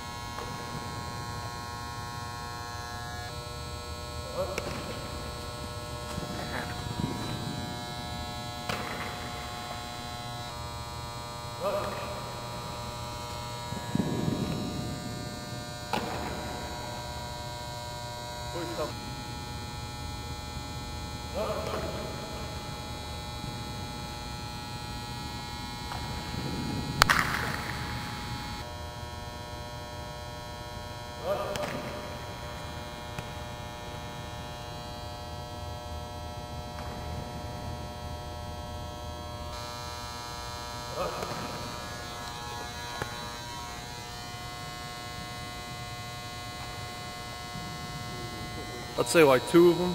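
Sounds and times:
electrical hum with high tones: 0.0 - 49.9
sharp crack: 11.6 - 17.3, 25.9 - 28.6.

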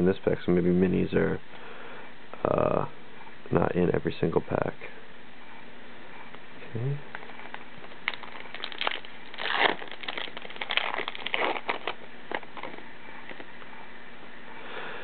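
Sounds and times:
foil wrapper tearing and crinkling: 7.4 - 12.8.

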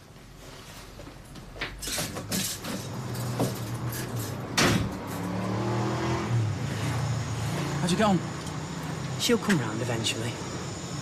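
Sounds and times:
knocks and clatters: 1.4 - 5.3.

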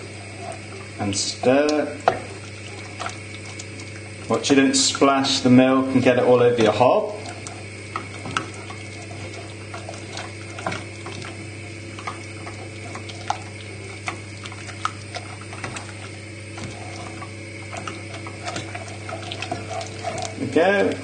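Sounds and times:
steady low hum: 0.0 - 21.0
spoon stirring thick sauce: 5.6 - 21.0.

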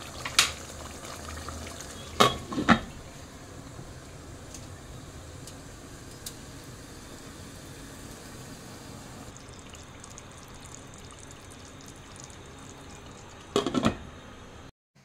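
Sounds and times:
gravy bubbling in a pot: 0.0 - 3.2, 9.3 - 13.6.

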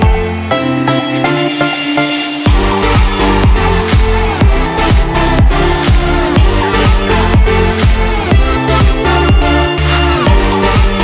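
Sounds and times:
electronic dance music: 0.0 - 11.0
pounding kick drum: 2.5 - 11.0.

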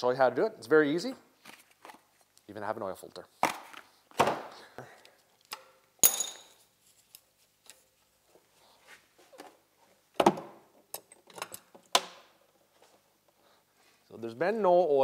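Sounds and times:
socket wrench metallic clinks: 6.0 - 6.6.

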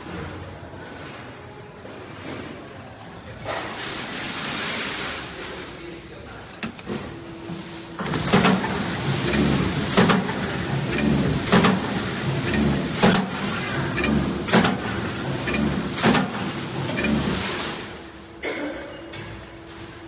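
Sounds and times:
machine humming: 6.6 - 18.4.

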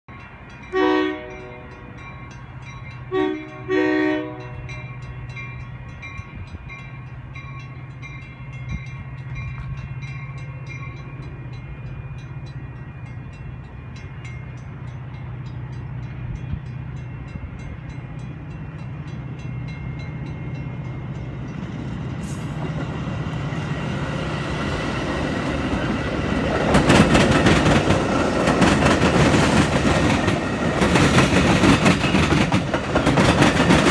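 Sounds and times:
train horn blasts: 0.6 - 2.0, 3.0 - 5.0
train wheels clattering on rails: 4.6 - 33.9.

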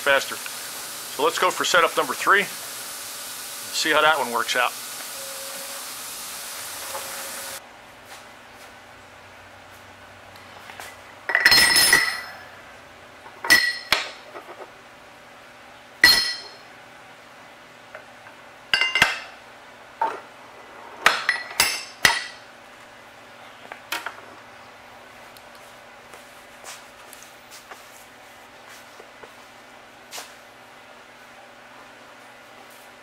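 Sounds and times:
metal plates clinking and clanking: 11.3 - 12.4.

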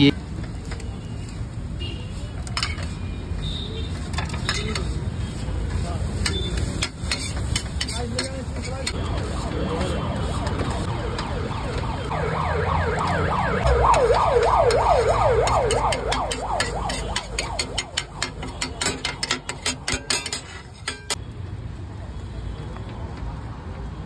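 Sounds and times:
metal spatula chopping on griddle: 2.4 - 3.0, 3.9 - 9.3, 14.0 - 21.2
siren wailing: 8.9 - 19.2.

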